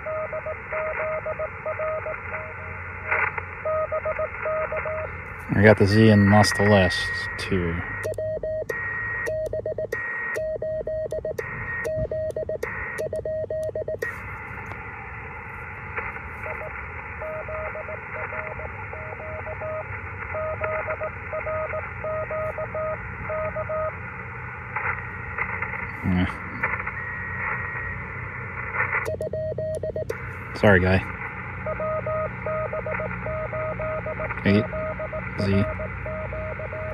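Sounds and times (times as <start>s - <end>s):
morse code sidetone beeps: 0.0s - 2.2s, 3.6s - 5.1s, 5.9s - 14.2s, 16.5s - 19.8s, 20.4s - 23.9s, 26.9s - 28.0s, 29.1s - 30.2s, 31.7s - 36.9s
radio receiver hiss: 0.0s - 13.1s, 13.8s - 36.2s
weak morse code reply: 3.7s - 14.2s, 31.7s - 36.9s.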